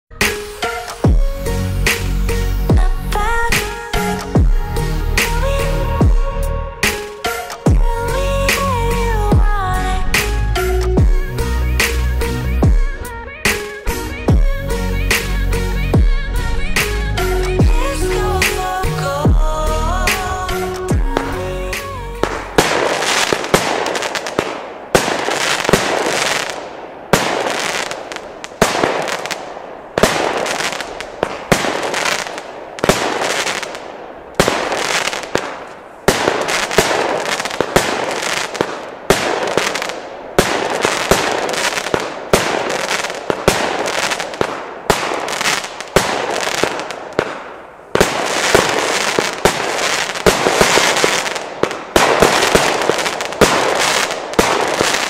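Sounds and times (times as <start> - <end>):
fireworks battery firing: 0.1 - 4.5, 20.0 - 55.0
sharp bangs with crackling bursts: 5.2 - 16.2, 20.1 - 55.0.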